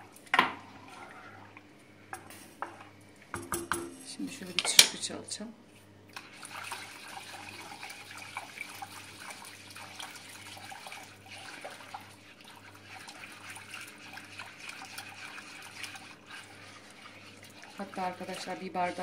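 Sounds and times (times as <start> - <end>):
whisk sloshing liquid: 0.1 - 4.5, 6.1 - 19.0.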